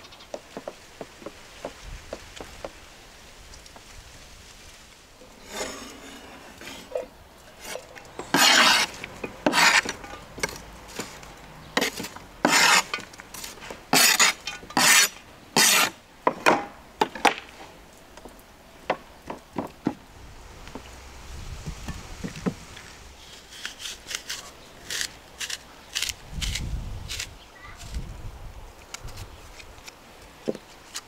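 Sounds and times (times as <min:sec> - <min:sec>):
utensils scraping a pan: 0:05.2 - 0:16.0.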